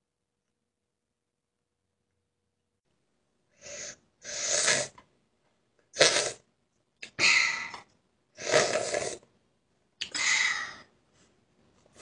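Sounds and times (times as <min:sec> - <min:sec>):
person slurping food: 0:03.6 - 0:05.0, 0:06.0 - 0:06.4, 0:08.4 - 0:09.2.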